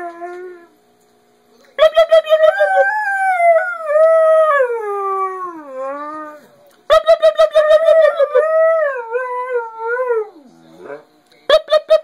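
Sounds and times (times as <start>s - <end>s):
dog howling: 1.8s - 6.4s, 7.0s - 11.0s.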